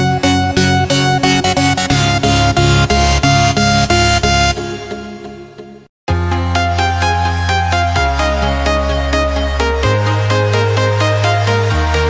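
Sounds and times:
electronic dance music: 0.0 - 5.3.

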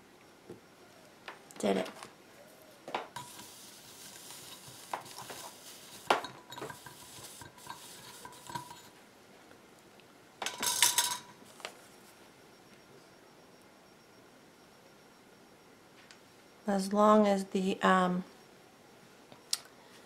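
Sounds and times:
faint hiss: 2.4 - 9.0
tools and glass clinking: 4.4 - 9.0, 10.4 - 11.4.

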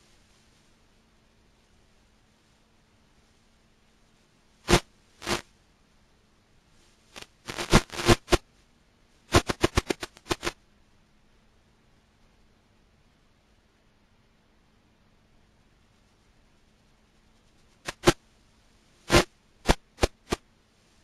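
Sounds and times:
harsh crackling static: 0.0 - 5.6, 6.7 - 10.6, 15.8 - 21.0
faint steady hum: 0.0 - 21.0.

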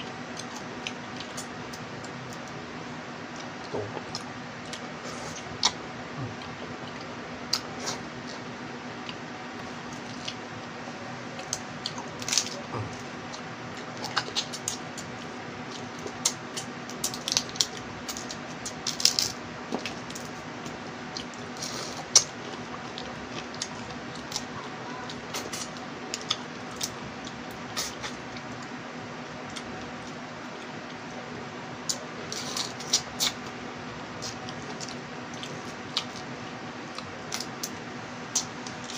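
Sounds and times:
steady low hum: 0.0 - 38.9
wet chewing: 3.3 - 28.8, 34.2 - 38.9.

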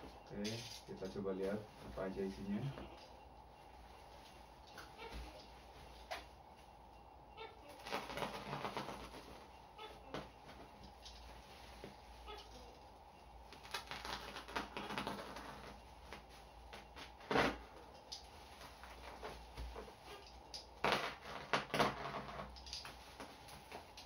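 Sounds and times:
bubble wrap crinkling: 7.6 - 24.0.

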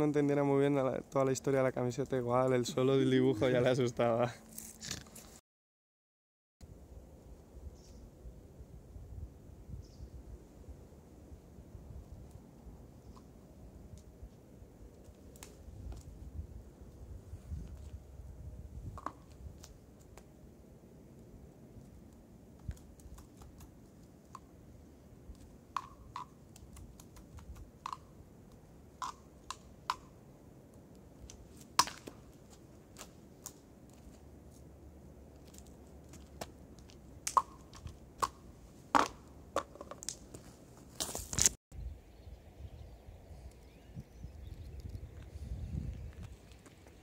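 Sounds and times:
diabolos knocking on sticks: 25.8 - 26.4, 29.0 - 30.1, 39.0 - 40.0.

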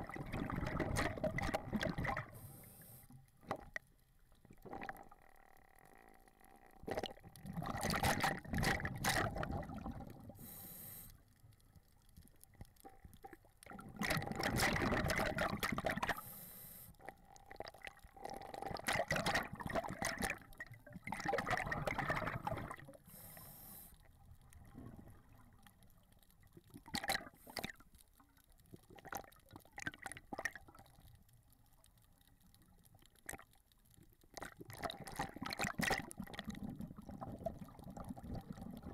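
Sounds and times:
bubbly exhaled air: 0.0 - 2.8
regulator inhalation hiss: 10.4 - 11.2, 16.2 - 17.0, 23.1 - 24.0.

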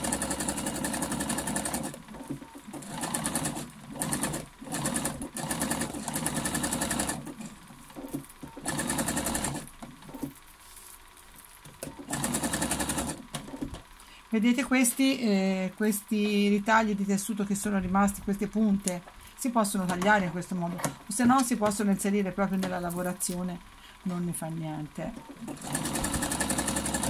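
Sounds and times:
sewing machine stitching: 0.0 - 10.4, 11.8 - 13.7, 25.2 - 27.0.

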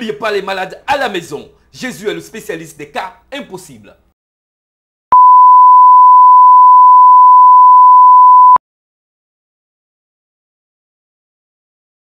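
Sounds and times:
electronic test tone: 5.2 - 8.6.

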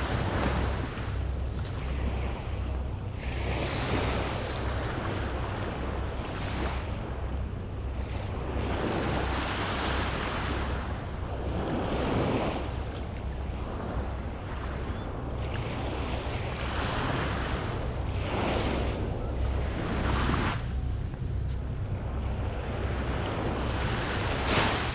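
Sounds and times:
small waves washing on beach: 0.0 - 7.2, 21.5 - 24.9
wind rumbling on microphone: 0.0 - 24.9.

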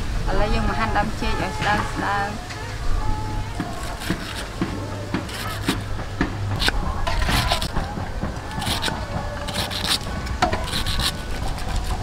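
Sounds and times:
knife slicing on wooden block: 3.6 - 5.9, 6.5 - 7.8, 8.5 - 12.0.

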